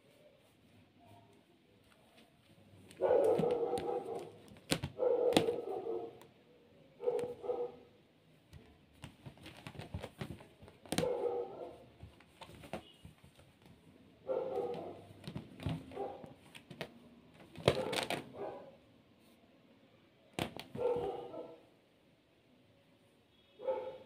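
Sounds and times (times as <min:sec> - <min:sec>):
sharp clicks and rustles: 0:02.1 - 0:05.7, 0:08.5 - 0:11.3.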